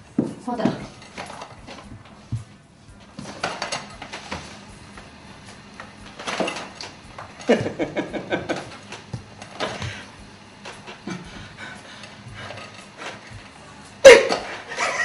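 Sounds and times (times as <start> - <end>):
man laughing: 7.4 - 8.8, 11.0 - 11.9, 14.1 - 15.0.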